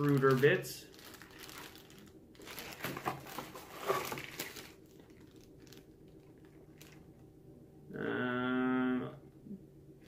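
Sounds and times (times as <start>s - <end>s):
plastic bags crinkling: 0.0s - 7.2s.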